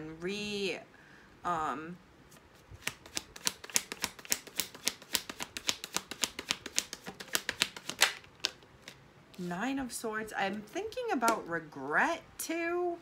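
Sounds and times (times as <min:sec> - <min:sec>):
cards being shuffled: 0:02.3 - 0:09.5
card snap: 0:02.8 - 0:08.6.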